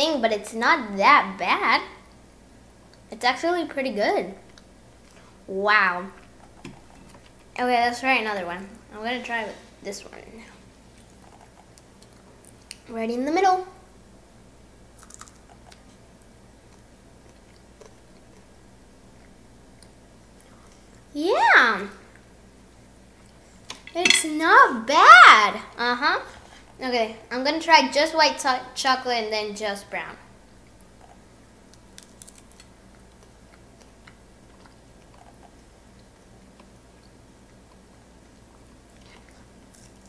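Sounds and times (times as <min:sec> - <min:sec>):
low room hum: 0:00.0 - 0:40.0
faint chewing: 0:10.4 - 0:12.9, 0:15.0 - 0:21.1, 0:30.6 - 0:40.0
chewing mouth clicks: 0:15.0 - 0:15.9.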